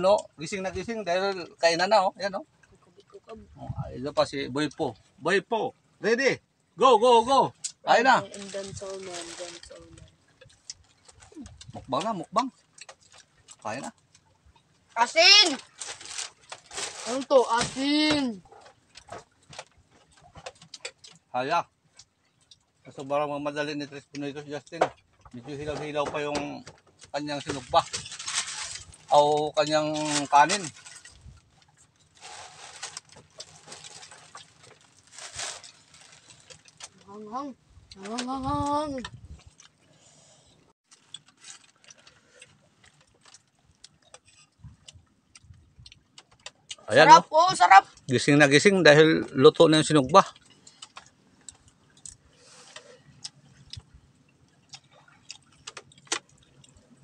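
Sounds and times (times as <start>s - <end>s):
people eating by hand: 7.5s - 37.2s, 37.8s - 57.0s.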